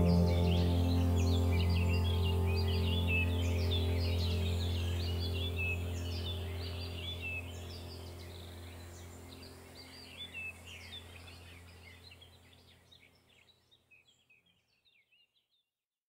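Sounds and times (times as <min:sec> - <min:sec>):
low music drone: 0:00.0 - 0:12.4
birds chirping and twittering: 0:00.0 - 0:15.6.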